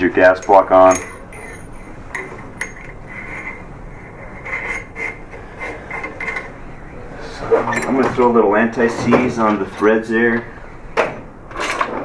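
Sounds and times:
metal parts rubbing: 0:00.1 - 0:06.6, 0:07.4 - 0:08.9.

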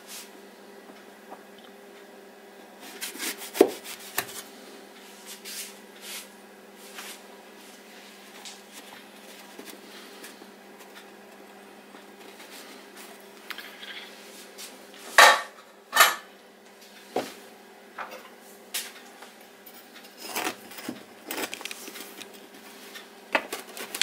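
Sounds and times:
metal tin scraping and clicking: 0:20.0 - 0:22.3.

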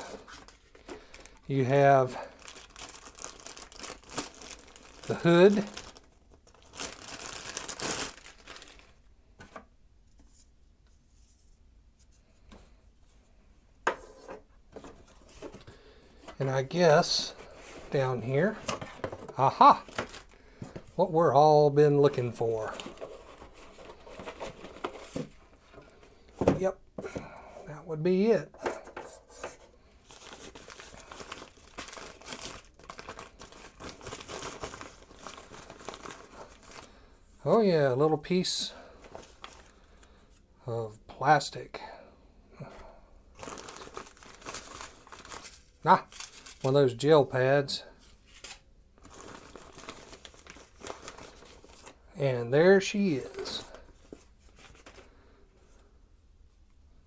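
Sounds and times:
plastic bag crinkling: 0:00.0 - 0:09.0, 0:16.5 - 0:20.8, 0:30.0 - 0:36.9, 0:43.4 - 0:46.8, 0:48.3 - 0:52.0.

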